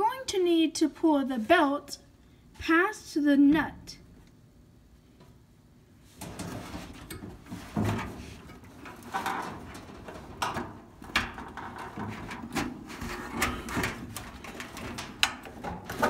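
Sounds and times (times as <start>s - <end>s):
parts knocking and scraping: 6.1s - 16.0s.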